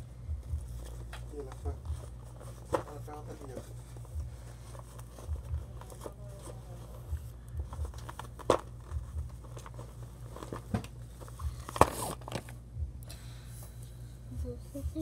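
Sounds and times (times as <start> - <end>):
paper card crinkling: 0.7 - 12.6.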